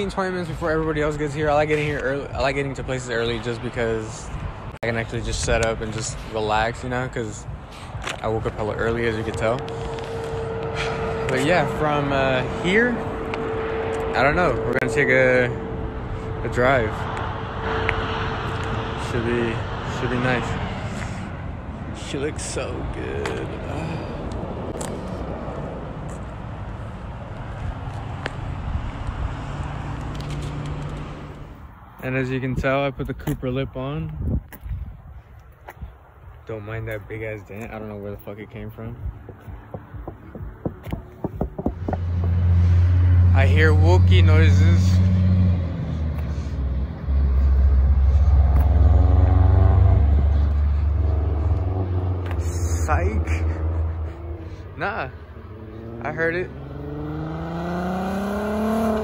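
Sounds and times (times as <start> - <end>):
car engine passing by: 0.7 - 31.7, 38.6 - 59.0
wind on microphone: 34.1 - 36.0
low engine rumble: 37.1 - 56.9.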